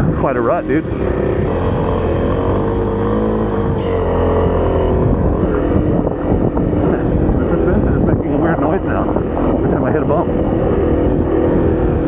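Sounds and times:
dirt bike engine running: 0:00.0 - 0:12.0
wind buffeting microphone: 0:00.0 - 0:12.0.

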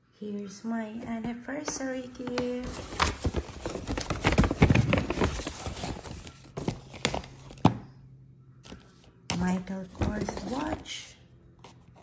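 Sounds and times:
paper bag rustling: 0:02.2 - 0:07.6.

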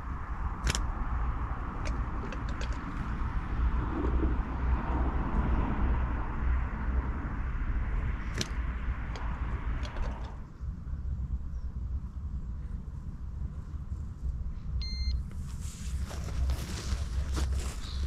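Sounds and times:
outdoor low rumble and hiss: 0:00.0 - 0:18.0
sharp clicks: 0:00.6 - 0:01.0, 0:08.3 - 0:10.4.

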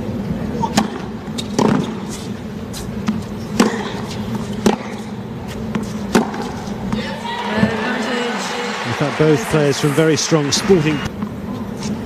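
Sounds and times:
tennis ball hit by rackets: 0:00.7 - 0:02.0, 0:05.7 - 0:07.8.

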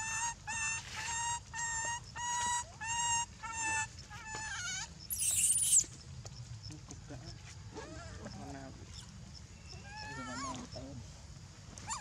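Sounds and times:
baby macaque coo calls: 0:00.0 - 0:05.9, 0:09.8 - 0:10.8
baby macaque screaming: 0:02.2 - 0:05.9.

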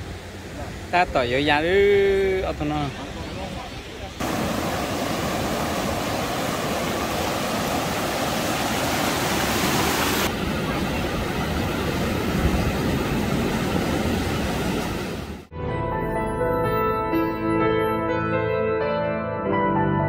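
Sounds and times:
steady rushing noise: 0:00.0 - 0:15.5.

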